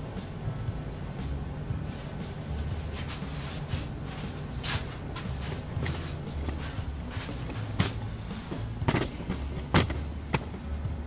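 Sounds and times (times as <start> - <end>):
low rumbling background: 0.0 - 11.0
footsteps: 2.0 - 9.9.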